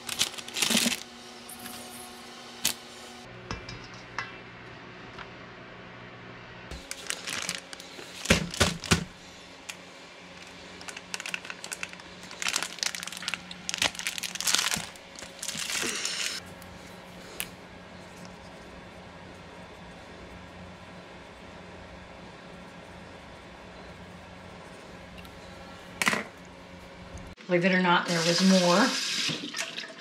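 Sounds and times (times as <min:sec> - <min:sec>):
plastic bag crinkling: 0:00.0 - 0:02.0, 0:06.7 - 0:16.4.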